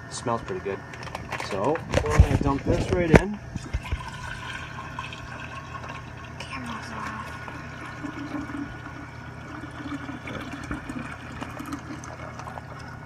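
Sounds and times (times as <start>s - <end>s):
juice pouring into a glass jar: 3.6s - 13.0s.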